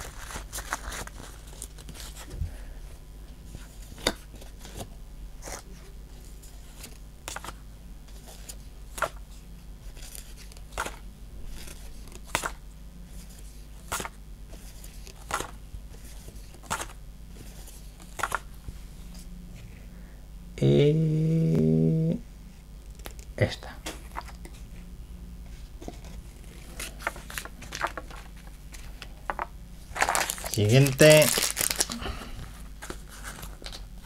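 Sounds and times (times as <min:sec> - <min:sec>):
steady low hum: 0:00.0 - 0:34.0
cards snapping with papery click: 0:11.7 - 0:12.6, 0:18.0 - 0:18.5.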